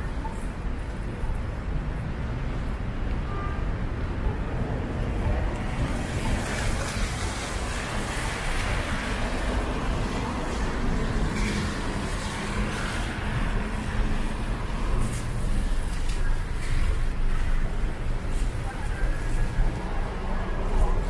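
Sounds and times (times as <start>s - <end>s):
low rumble of engines: 0.0s - 21.0s
tyres hissing on wet pavement: 5.6s - 21.0s.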